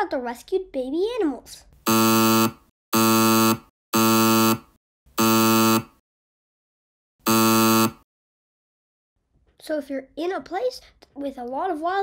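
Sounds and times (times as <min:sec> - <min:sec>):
harsh buzzer blasts: 0:01.8 - 0:06.0, 0:07.2 - 0:08.1.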